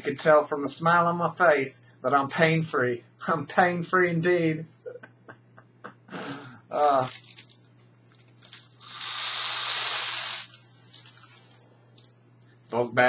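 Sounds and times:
airy hiss of inhalation: 8.8s - 10.6s.

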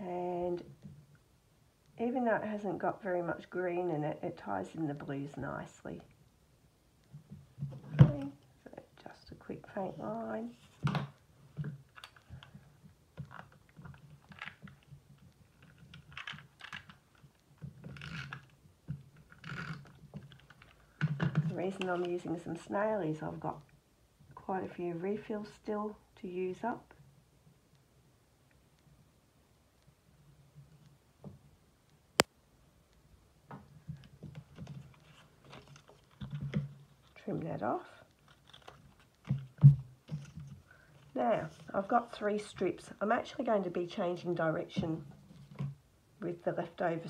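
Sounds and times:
paper rustling: 38.2s - 40.9s.

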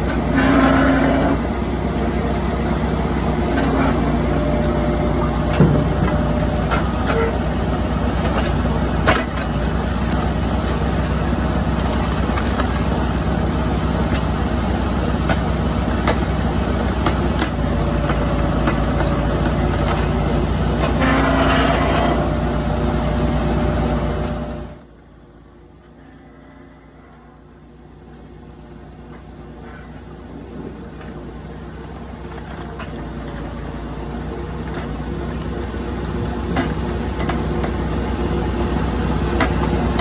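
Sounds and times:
hydraulic log splitter engine: 0.0s - 40.0s
wood splitting cracks: 3.5s - 21.0s, 32.0s - 38.0s, 39.3s - 40.0s.

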